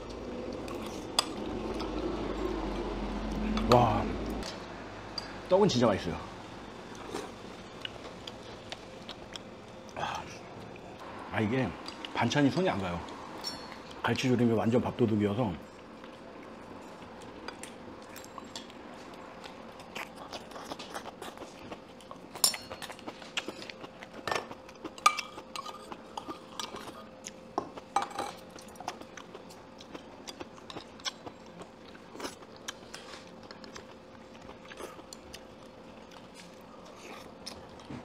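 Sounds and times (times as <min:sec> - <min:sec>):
utensils clinking on metal bowls: 0:13.4 - 0:14.0, 0:22.4 - 0:26.9, 0:27.6 - 0:28.4
chewing: 0:15.8 - 0:38.0.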